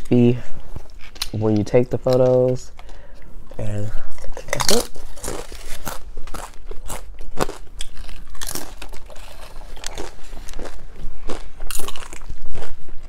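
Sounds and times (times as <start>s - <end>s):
chips crunching while chewed: 4.2s - 13.0s.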